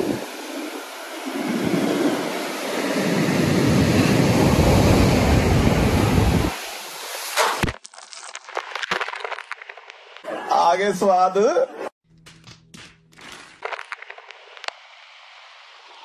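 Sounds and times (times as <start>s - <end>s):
wind buffeting microphone: 0.0s - 6.6s
surf washing up beach: 0.0s - 7.7s.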